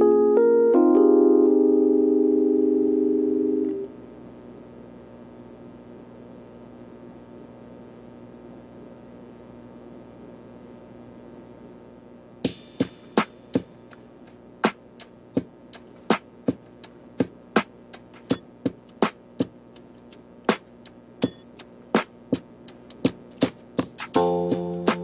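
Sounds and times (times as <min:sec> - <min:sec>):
faint steady hum: 0:00.0 - 0:25.0
clicking drum-machine beat: 0:12.4 - 0:25.0.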